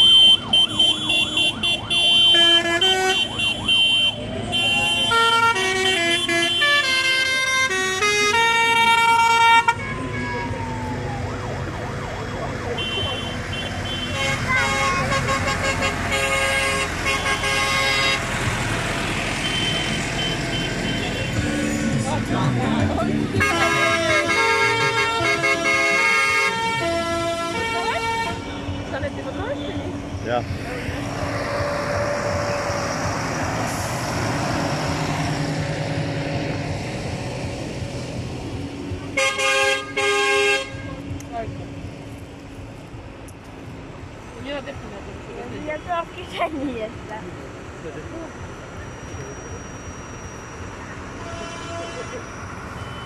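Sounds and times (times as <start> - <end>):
vehicle horn tooting: 0.0 - 10.3, 12.8 - 18.2, 19.4 - 21.4, 23.4 - 29.8, 39.2 - 41.0, 51.1 - 53.0
tractor engine passing: 13.3 - 39.2.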